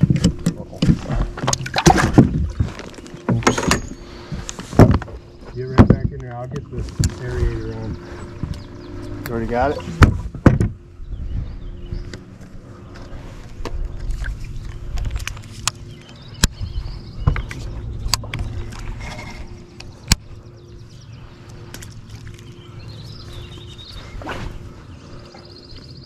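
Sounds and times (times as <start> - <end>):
electric boat motor humming: 6.5 - 26.0.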